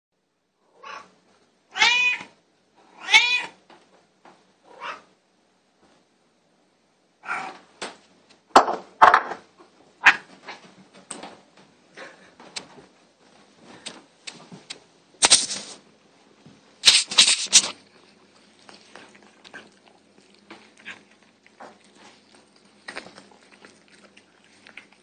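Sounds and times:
cat meowing: 0:01.7 - 0:02.3, 0:02.9 - 0:03.6, 0:04.7 - 0:05.1, 0:07.2 - 0:07.6
rustling: 0:15.2 - 0:15.8, 0:16.8 - 0:25.0.

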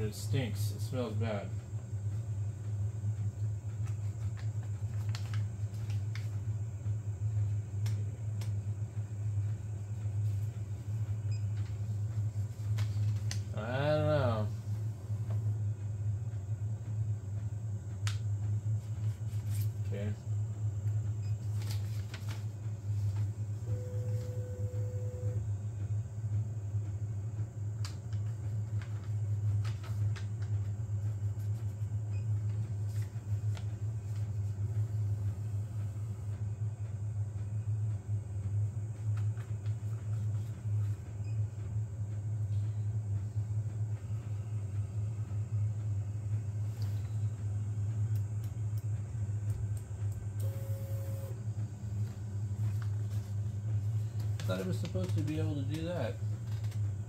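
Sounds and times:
cooling fans humming: 0:00.0 - 0:57.0
short steady tone: 0:23.7 - 0:25.4, 0:50.4 - 0:51.4.

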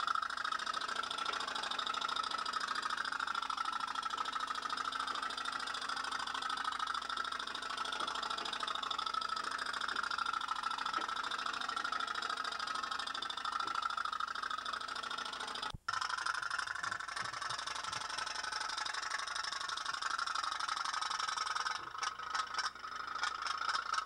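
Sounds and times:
steam toy boat putt-putt: 0:15.9 - 0:20.1, 0:20.8 - 0:24.0.

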